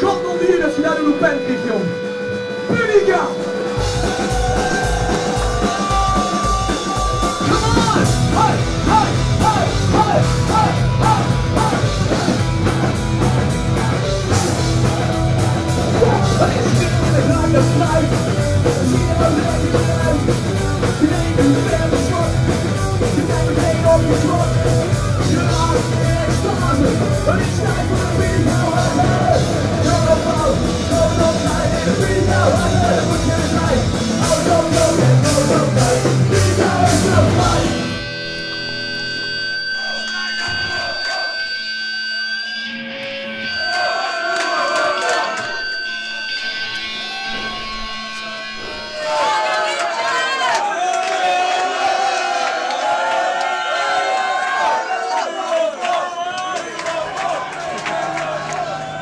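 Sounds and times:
punk rock band playing live: 0.0s - 38.7s
bass guitar: 0.0s - 41.5s
drum kit: 1.9s - 38.1s
loud singing: 3.3s - 59.0s.

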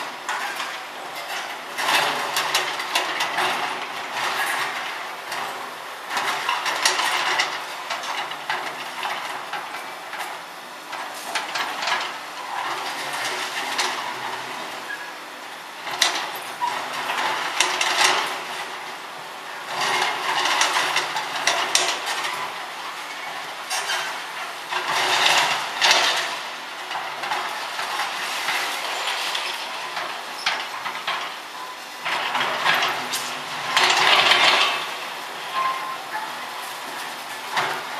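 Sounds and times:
metallic clattering and clanking: 19.6s - 37.9s.

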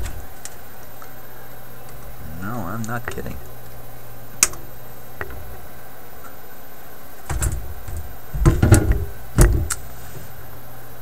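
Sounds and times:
steady low hum: 0.0s - 11.0s
tools knocking on wooden workbench: 7.3s - 9.8s.

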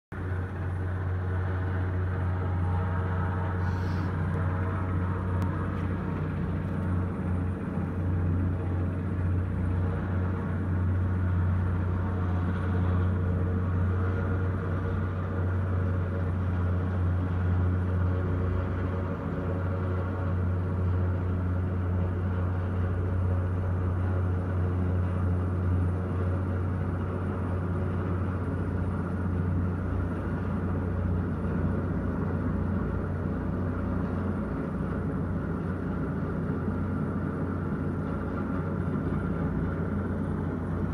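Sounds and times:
helicopter rotors rumbling: 0.1s - 40.9s.

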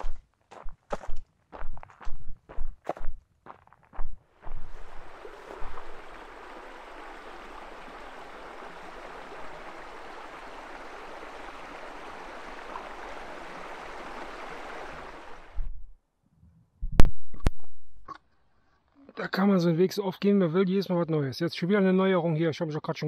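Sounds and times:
stream rushing: 4.3s - 15.6s.

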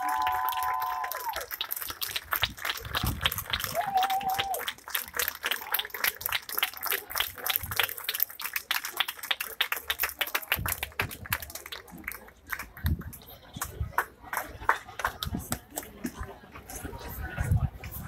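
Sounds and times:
audience applauding: 0.0s - 15.3s.

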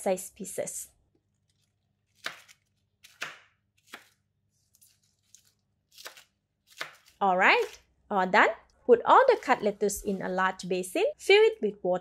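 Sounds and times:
knife chopping lettuce on board: 6.0s - 7.8s.

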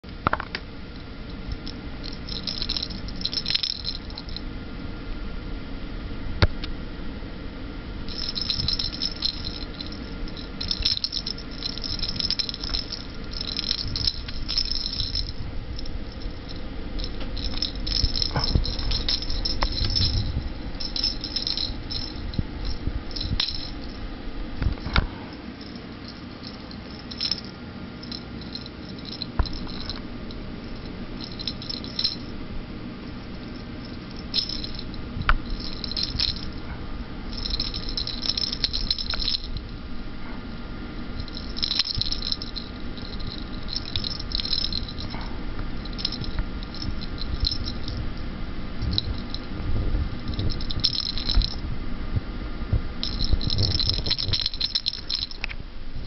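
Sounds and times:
toy ball rattling: 1.5s - 4.4s, 8.1s - 24.0s, 25.6s - 32.3s, 33.1s - 36.7s, 37.3s - 39.8s, 41.2s - 45.2s, 45.8s - 48.1s, 50.3s - 51.6s, 53.0s - 55.5s.

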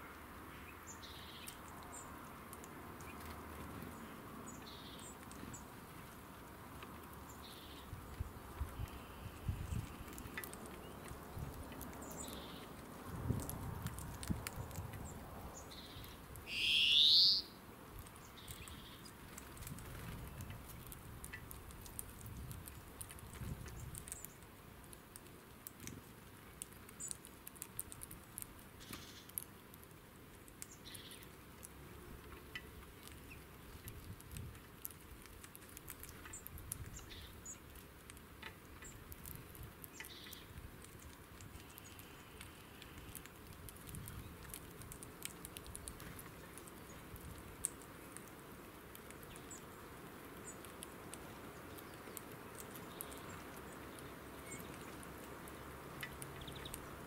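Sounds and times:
birds pecking and cracking seeds: 0.0s - 57.0s
faint bird calls: 15.6s - 17.6s.

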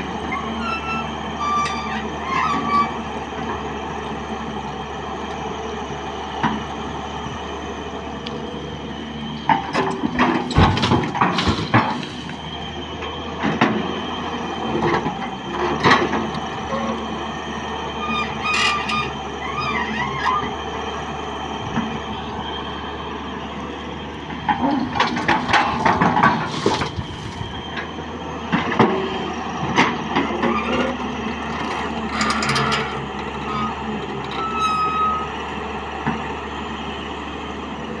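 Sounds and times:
excavator diesel engine running: 0.0s - 38.0s
brief high squeals: 33.5s - 35.4s.

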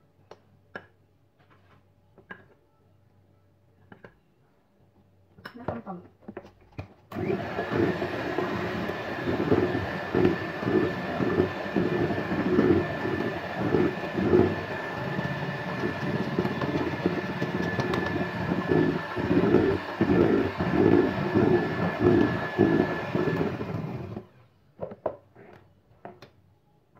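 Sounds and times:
electric hand mixer whining: 7.1s - 24.4s.

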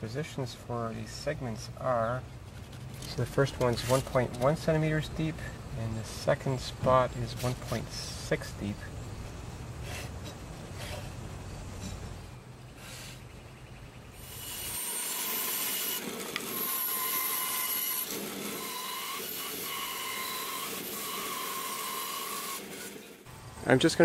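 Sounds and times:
bandsaw cutting wood: 2.8s - 4.8s, 14.2s - 23.3s.

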